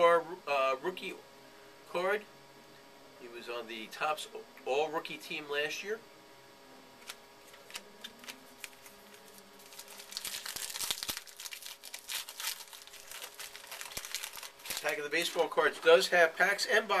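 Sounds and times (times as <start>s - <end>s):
card pack wrapper crinkling and tearing: 7.0s - 15.6s.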